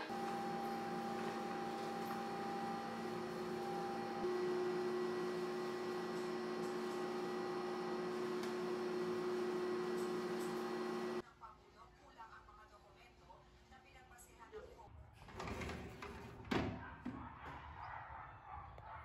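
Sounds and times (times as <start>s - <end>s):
electrical hum: 0.0s - 11.2s.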